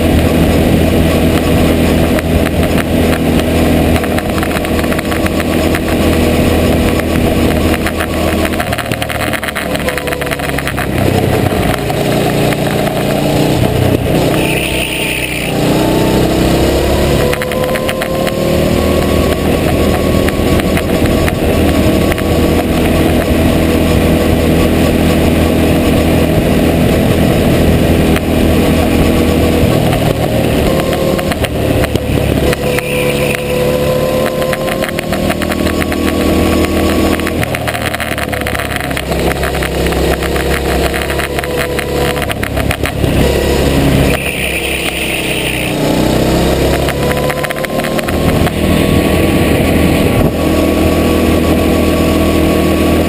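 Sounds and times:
go-kart engine running hard: 0.0 - 53.0
brief high squeal: 14.4 - 15.6, 32.5 - 34.4, 44.1 - 45.8.

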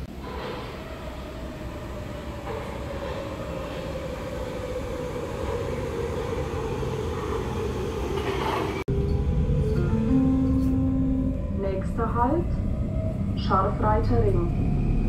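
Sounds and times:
train rumbling: 0.0 - 15.0.

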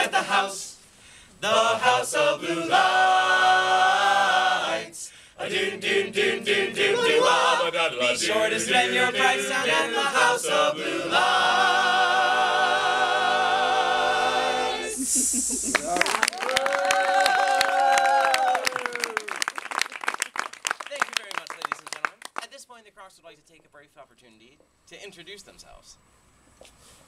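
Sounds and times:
male group singing in harmony: 0.0 - 0.8, 1.4 - 15.2.

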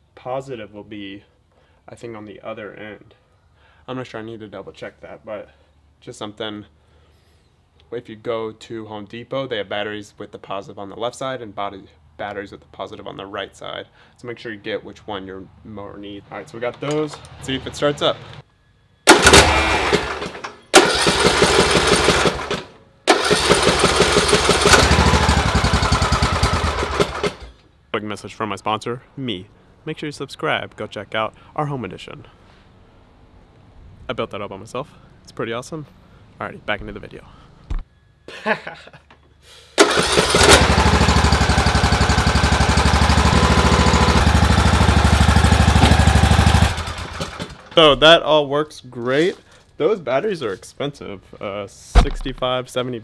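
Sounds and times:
mower engine starting and running: 19.1 - 27.6, 39.8 - 48.1.

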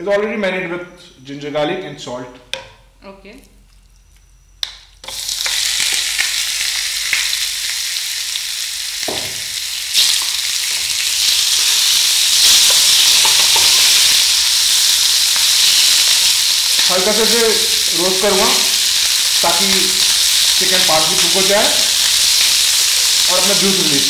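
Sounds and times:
chicken sizzling in hot oil: 5.0 - 24.0.

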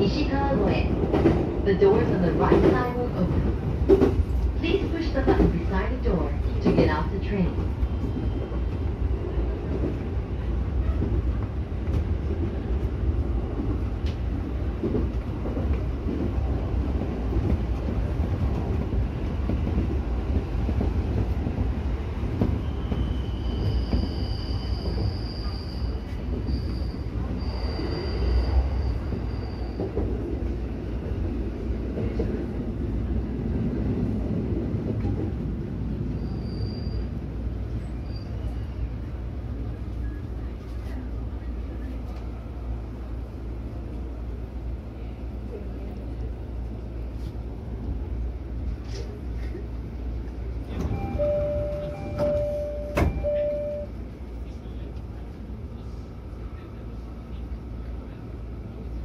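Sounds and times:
train wheels rumbling on rail: 0.0 - 59.0
high-pitched wheel squeal: 22.6 - 29.9, 36.1 - 37.2.

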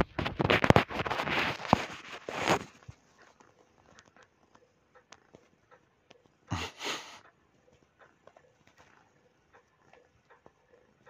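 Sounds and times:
cat claws kneading on fabric: 0.0 - 4.2.

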